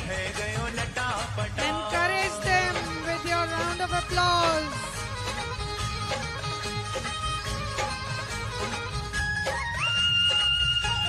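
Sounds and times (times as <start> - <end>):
devotional dance music: 0.0 - 11.0.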